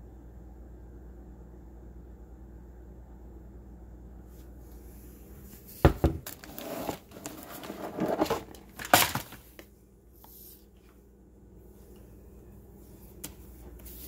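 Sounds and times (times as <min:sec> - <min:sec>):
rustling and crinkling: 0:04.3 - 0:11.1.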